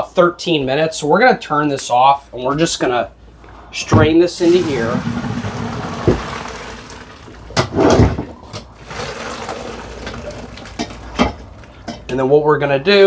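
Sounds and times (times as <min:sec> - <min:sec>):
draining water rushing: 0:04.4 - 0:11.6
pot clattering: 0:08.8 - 0:12.1.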